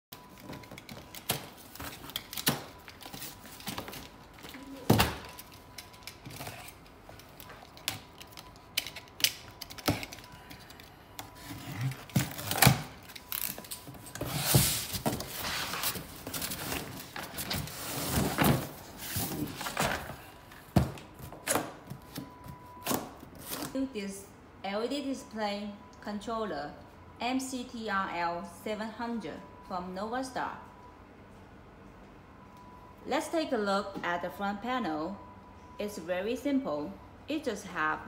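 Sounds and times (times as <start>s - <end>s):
cardboard scraping and rustling: 13.9s - 20.2s.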